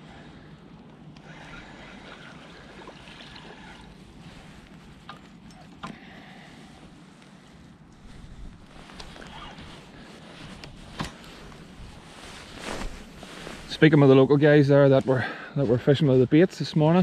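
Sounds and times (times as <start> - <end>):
water sloshing around wader: 1.2 - 6.7.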